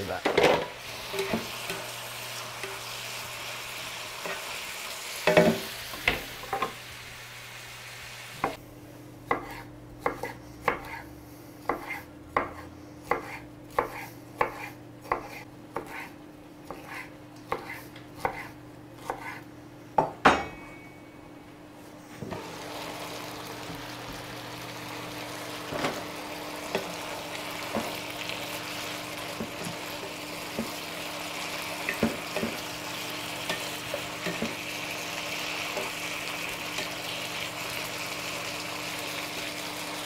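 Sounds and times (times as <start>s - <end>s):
meat sizzling in a frying pan: 0.0s - 8.6s, 22.4s - 40.0s
knife chopping on wooden board: 9.3s - 11.0s, 11.7s - 19.4s.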